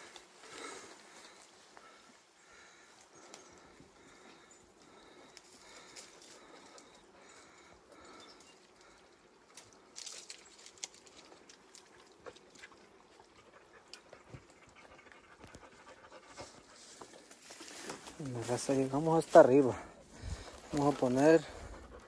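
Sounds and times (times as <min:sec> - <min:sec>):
person panting: 0:00.0 - 0:09.9, 0:19.6 - 0:22.0.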